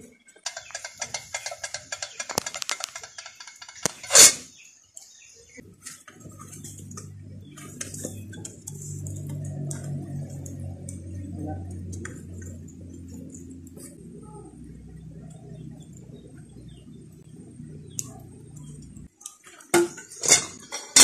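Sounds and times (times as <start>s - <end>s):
fire crackling and snapping: 0.3s - 20.7s
low rumble of flames: 5.6s - 20.8s.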